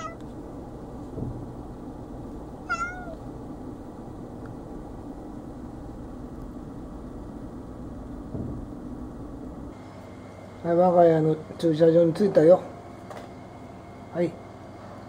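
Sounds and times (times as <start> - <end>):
cat meowing: 0.0 - 0.2, 2.6 - 3.2.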